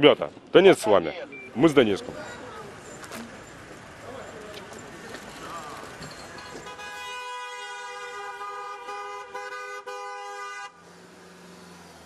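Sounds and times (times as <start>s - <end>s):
street traffic: 0.0s - 12.0s
car horn: 6.4s - 10.8s.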